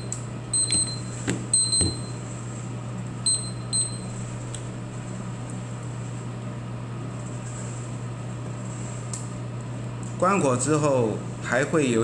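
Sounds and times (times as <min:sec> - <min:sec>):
roaster fan humming: 0:00.0 - 0:12.0.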